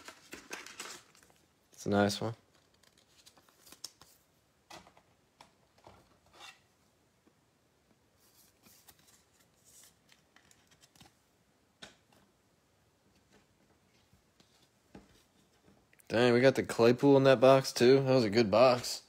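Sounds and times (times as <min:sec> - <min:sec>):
trading cards rustling: 0:00.0 - 0:04.3, 0:08.2 - 0:11.2.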